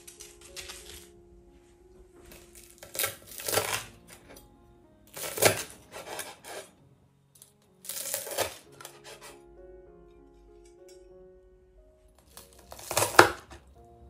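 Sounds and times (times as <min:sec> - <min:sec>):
small crackles: 0:00.0 - 0:04.5
knife cutting crunchy batter: 0:02.7 - 0:03.9, 0:05.1 - 0:06.7, 0:07.9 - 0:09.3, 0:12.3 - 0:13.6.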